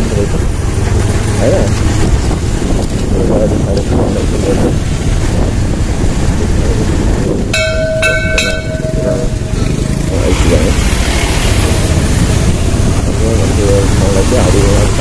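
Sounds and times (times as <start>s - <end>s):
motorbike engine rumble: 0.0s - 15.0s
wind on microphone: 0.0s - 15.0s
bell ringing: 7.6s - 10.1s.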